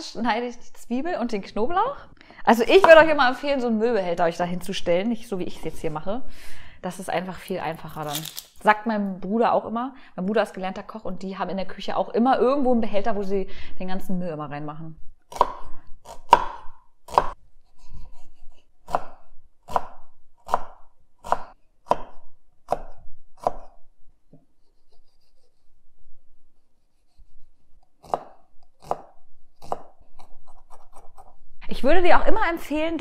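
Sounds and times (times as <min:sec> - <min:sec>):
knife chopping on wooden board: 0:02.8 - 0:03.1, 0:15.3 - 0:17.4, 0:18.8 - 0:23.8, 0:28.0 - 0:31.3.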